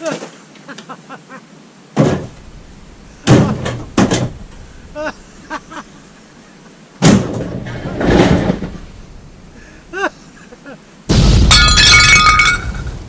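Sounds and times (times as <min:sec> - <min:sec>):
metal box bang: 0:07.0 - 0:08.8.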